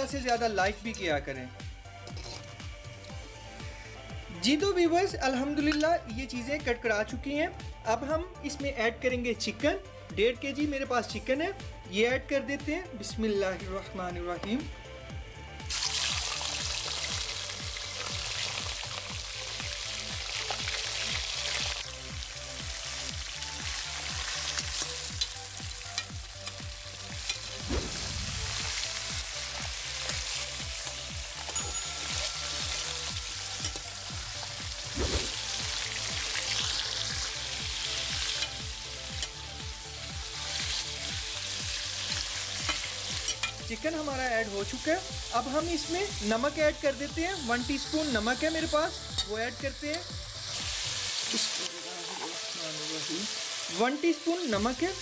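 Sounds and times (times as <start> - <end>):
chicken sizzling in oil: 15.6 - 55.0
spoon clanking on metal pan: 42.6 - 43.6.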